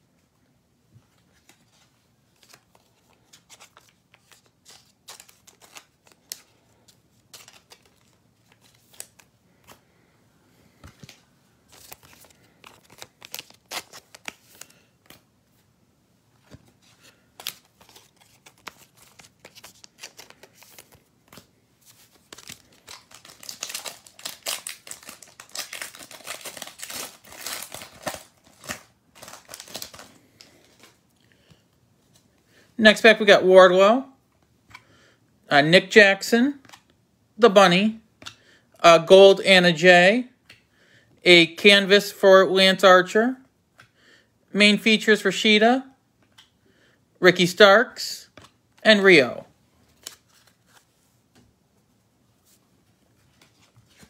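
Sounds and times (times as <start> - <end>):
pack wrapper crinkling and tearing: 2.4 - 6.6, 7.3 - 9.3, 11.7 - 14.8, 17.4 - 31.0
trading cards clicking and rustling: 2.4 - 9.8, 10.8 - 15.2, 16.4 - 31.0.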